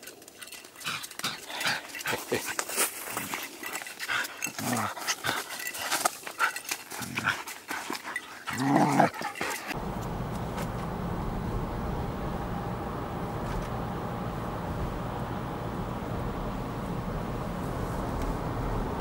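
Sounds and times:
dog growling: 8.5s - 9.7s
car cabin hum while driving: 9.8s - 19.0s.

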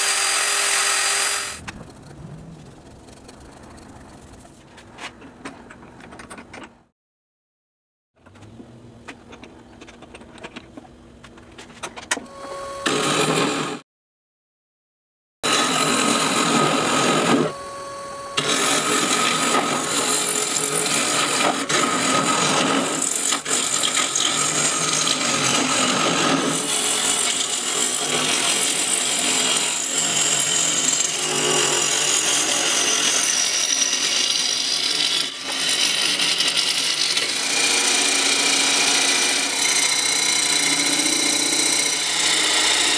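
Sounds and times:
gouge scraping spinning wood: 0.0s - 4.6s, 18.4s - 42.9s
lathe motor whine: 15.5s - 21.4s.

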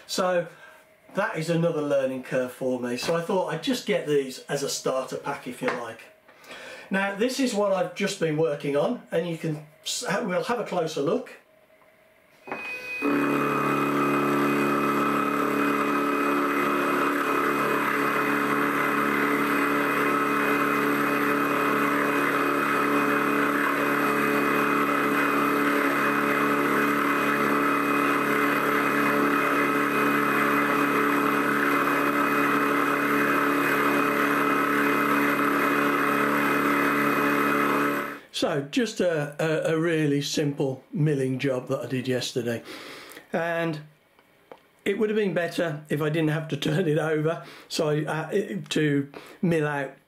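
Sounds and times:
milling machine cutting metal: 13.0s - 38.2s.

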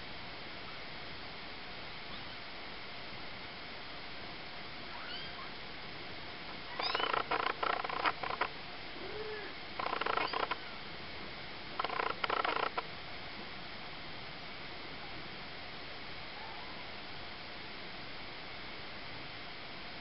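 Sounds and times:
kitten mewing: 6.7s - 7.9s.

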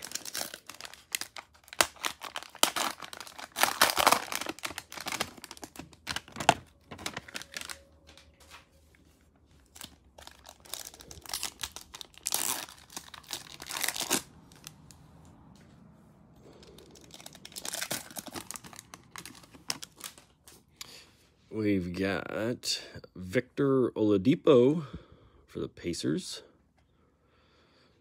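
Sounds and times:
cellophane crinkling: 0.0s - 14.9s, 16.6s - 20.6s.

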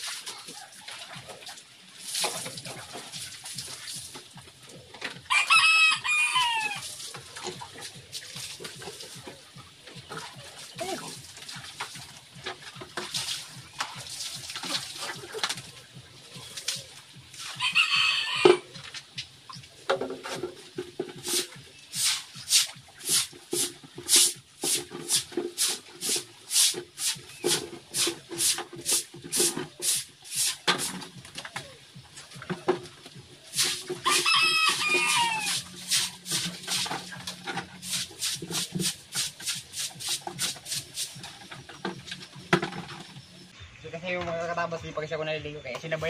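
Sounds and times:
stiff broom scrubbing wet concrete: 0.0s - 43.5s
water splashing: 0.0s - 43.6s
high-pitched animal call: 17.6s - 18.8s, 34.0s - 35.7s.

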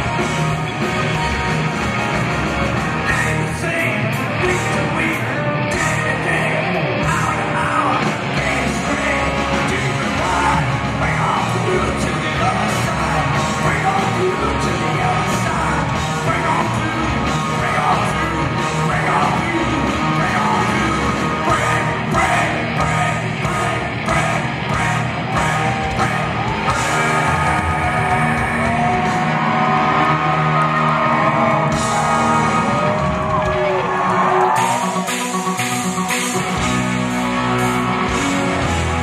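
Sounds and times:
drums: 0.0s - 39.0s
electric guitars: 0.0s - 39.0s
man singing with a yell: 3.0s - 35.4s.

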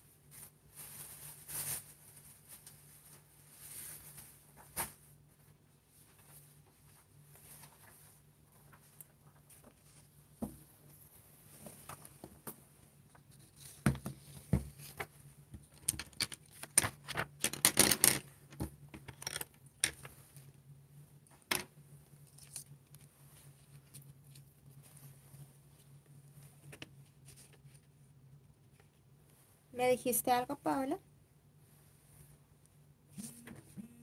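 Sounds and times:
paper rustling: 13.1s - 15.1s, 22.2s - 25.2s
pencils knocking on table: 15.8s - 20.0s.

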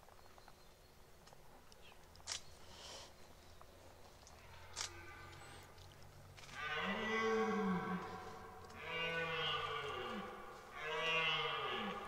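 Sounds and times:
deer stag roaring: 6.5s - 12.0s.

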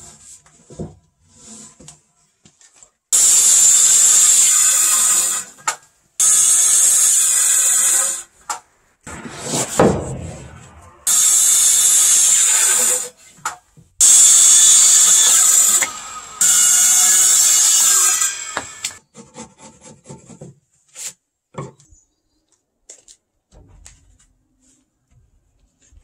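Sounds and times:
circular saw cutting wood: 3.2s - 8.3s, 9.1s - 13.3s, 14.0s - 19.6s
loud knock: 9.1s - 11.2s.

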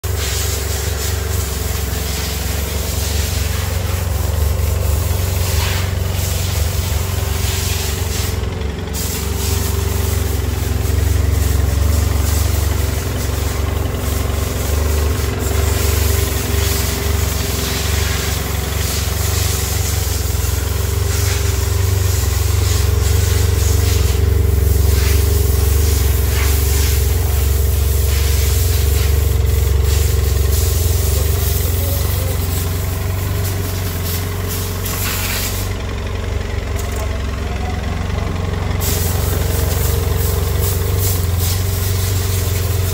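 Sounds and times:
motorcycle engine idling: 0.0s - 42.9s.

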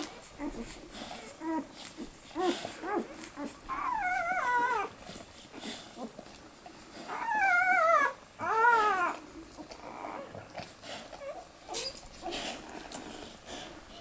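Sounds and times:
puppy crying: 2.4s - 5.0s, 7.1s - 10.4s.

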